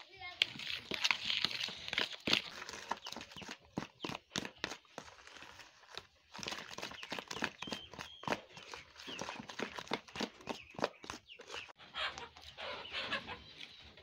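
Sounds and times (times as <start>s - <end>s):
wooden spoon tapping and scraping bowl: 6.3s - 11.8s.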